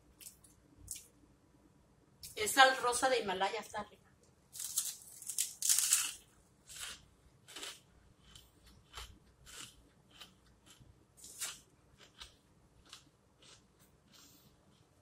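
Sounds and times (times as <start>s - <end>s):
crunching potato chips: 4.5s - 14.8s.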